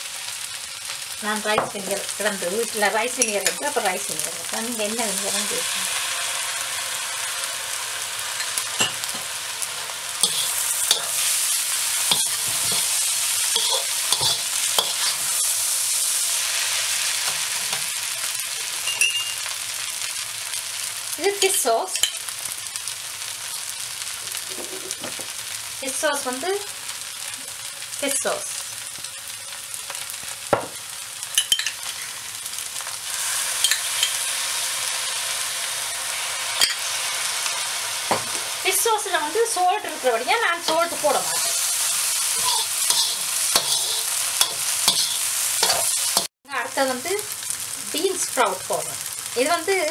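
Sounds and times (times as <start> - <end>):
noodles sizzling in a wok: 0.0 - 49.9
metal spatula scraping a pan: 10.2 - 15.6, 40.6 - 46.3.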